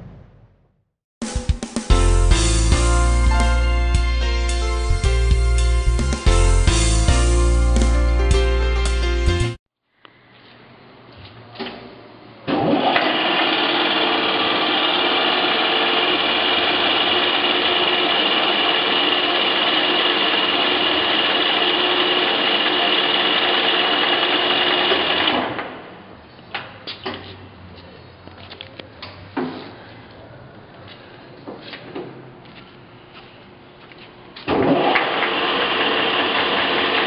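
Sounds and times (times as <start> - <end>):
lathe running with gear whine: 12.7 - 25.5, 34.5 - 37.0.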